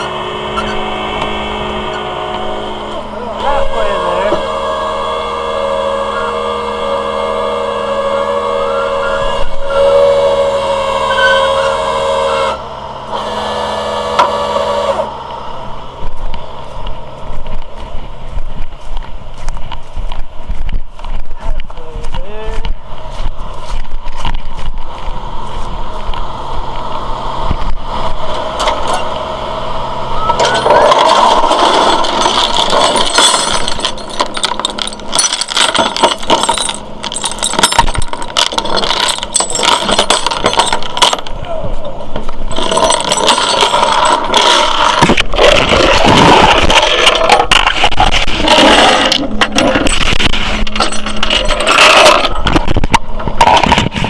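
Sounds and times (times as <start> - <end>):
truck engine humming: 0.0 - 54.0
steel chains clanking and rattling: 30.2 - 54.0.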